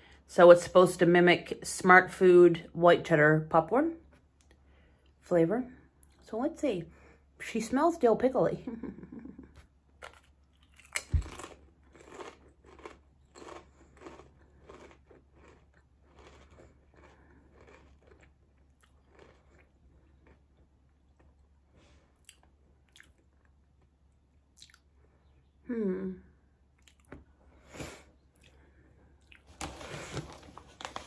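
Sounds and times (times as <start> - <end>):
crunchy chewing: 9.6 - 24.9
biting crisp potato chip: 10.0 - 20.5.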